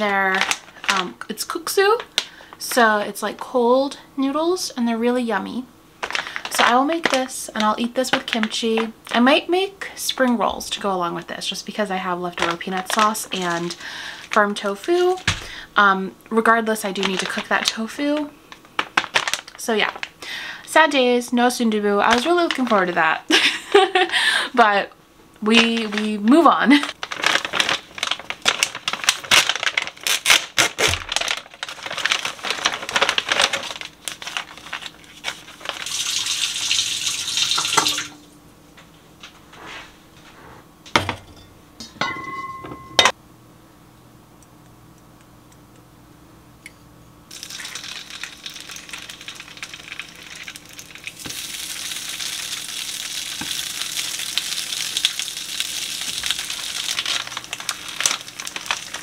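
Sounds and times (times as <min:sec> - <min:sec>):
dishes and utensils clattering: 0:40.9 - 0:43.1.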